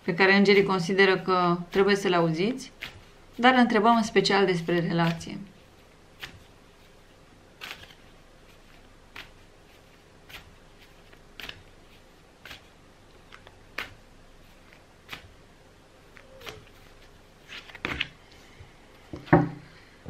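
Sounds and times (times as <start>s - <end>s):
cards being shuffled: 2.7s - 3.4s, 4.0s - 15.4s, 16.0s - 18.4s.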